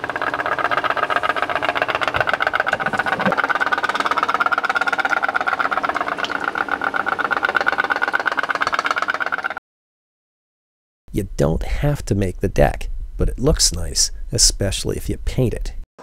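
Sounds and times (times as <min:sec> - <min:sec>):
pop-pop boat engine putt-putting: 0:00.0 - 0:09.6.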